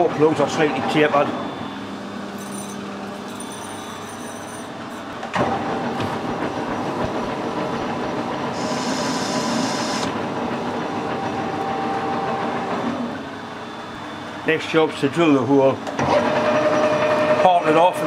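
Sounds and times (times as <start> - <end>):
metal lathe running: 0.0 - 15.4, 16.0 - 18.0
tool cutting metal: 8.6 - 10.1.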